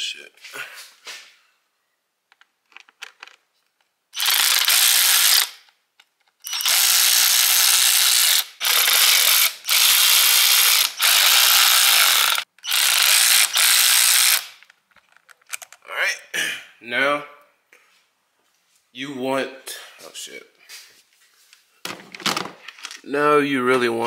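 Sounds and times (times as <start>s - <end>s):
cordless power tool whirring: 4.2s - 5.6s, 6.4s - 14.6s.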